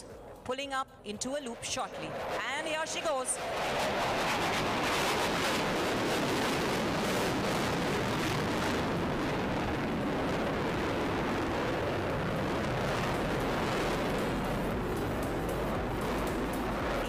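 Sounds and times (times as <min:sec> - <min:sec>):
jet flying overhead: 0:01.2 - 0:17.0.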